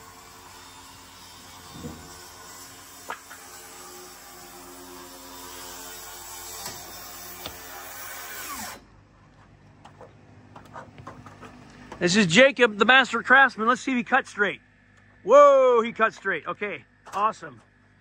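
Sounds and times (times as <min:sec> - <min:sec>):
circular saw running: 0:00.0 - 0:08.8.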